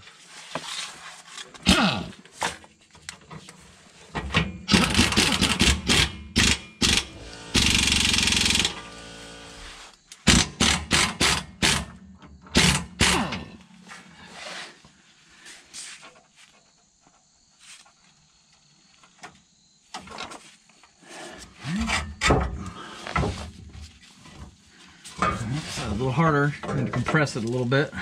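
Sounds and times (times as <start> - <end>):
pneumatic impact wrench hammering: 4.3 - 13.6.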